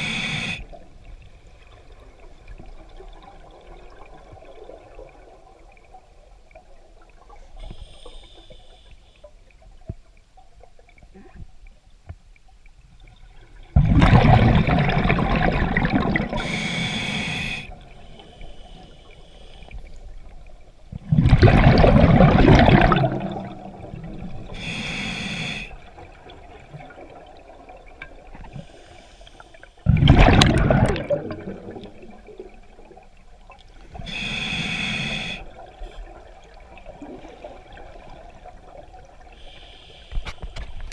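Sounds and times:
exhaled bubbles gushing underwater: 0:13.2 - 0:16.6, 0:20.1 - 0:24.7, 0:29.8 - 0:34.1.

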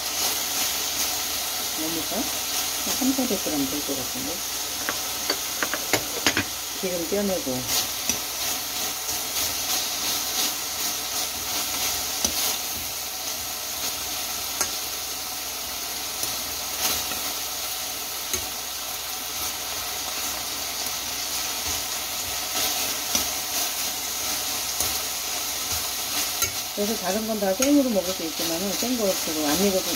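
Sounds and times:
meat and vegetables sizzling: 0:00.0 - 0:29.9
metal tongs clicking on pan: 0:08.0 - 0:08.3, 0:14.5 - 0:14.8, 0:18.2 - 0:18.6, 0:26.3 - 0:26.7, 0:27.5 - 0:27.9.

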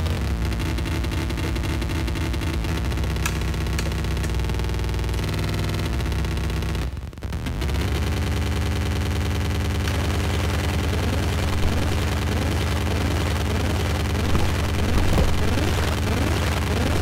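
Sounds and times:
gritty synthesizer noise: 0:00.0 - 0:17.0.

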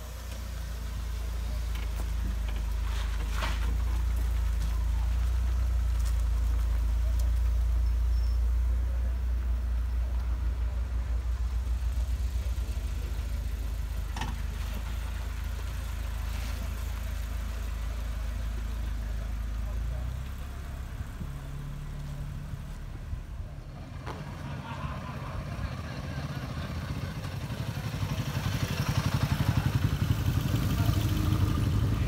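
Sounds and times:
car engines rumbling: 0:00.0 - 0:32.0.

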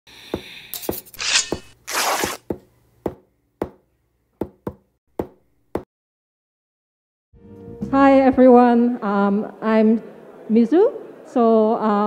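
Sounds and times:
sharp knocks: 0:04.4 - 0:05.9.

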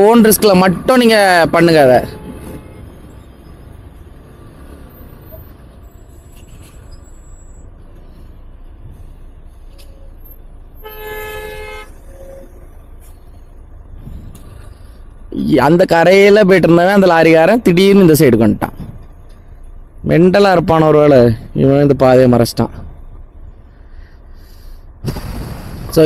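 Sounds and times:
road traffic engine rumble: 0:00.0 - 0:26.0
vehicle horn: 0:01.9 - 0:03.0, 0:10.8 - 0:12.7.

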